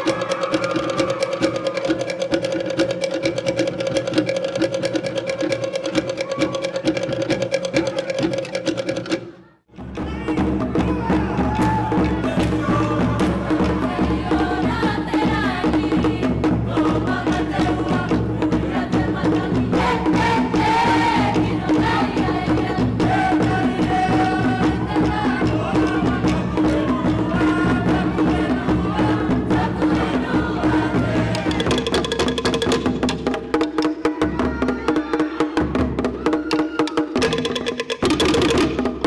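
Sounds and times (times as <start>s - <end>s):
wooden log drums beating: 0.0s - 39.0s
voices singing: 10.0s - 32.1s.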